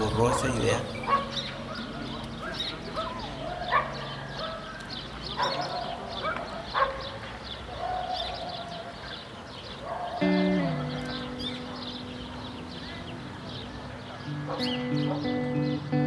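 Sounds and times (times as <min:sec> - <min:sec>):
dogs barking: 0:00.0 - 0:16.0
small birds chirping: 0:00.0 - 0:16.0
music: 0:10.2 - 0:13.2, 0:14.1 - 0:16.0.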